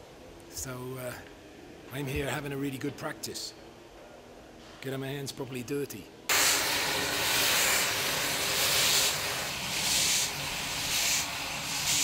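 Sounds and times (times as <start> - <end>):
steam hissing from drain cocks: 6.3 - 12.0.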